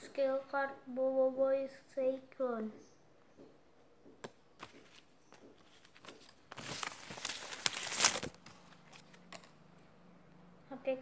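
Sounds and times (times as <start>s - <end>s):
cards tapping and rustling: 4.1s - 9.6s
loud plastic crinkling: 4.9s - 9.5s.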